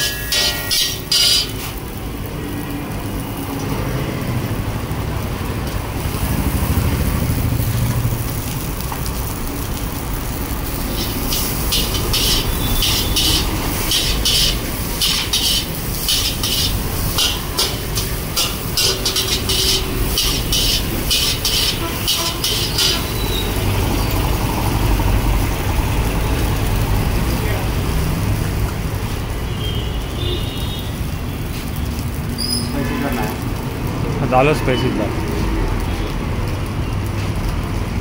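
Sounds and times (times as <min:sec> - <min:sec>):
metal spatula scraping a wok: 0:00.0 - 0:01.8, 0:10.9 - 0:23.6
low traffic rumble: 0:00.0 - 0:38.0.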